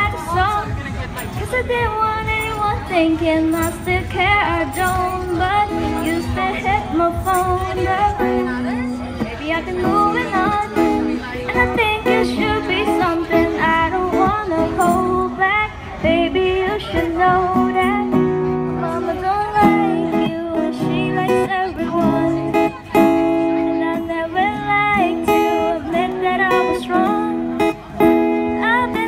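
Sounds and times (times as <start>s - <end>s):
strummed acoustic guitars: 0.0s - 29.0s
woman singing into a microphone: 0.0s - 29.0s.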